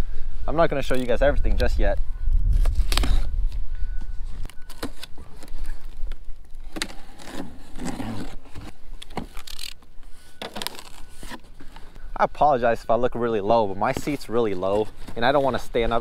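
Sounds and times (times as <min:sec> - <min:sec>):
blade slitting packing tape: 0:06.7 - 0:09.8.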